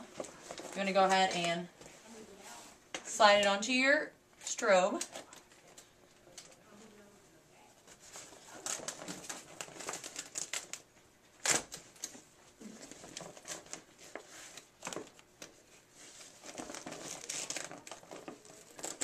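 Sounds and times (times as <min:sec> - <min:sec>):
fabric rustling and crinkling: 0:07.8 - 0:11.0, 0:12.2 - 0:19.0.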